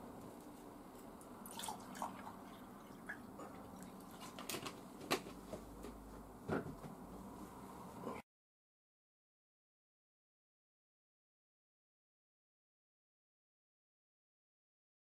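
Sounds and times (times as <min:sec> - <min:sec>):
water pouring into a glass: 0:01.4 - 0:04.2.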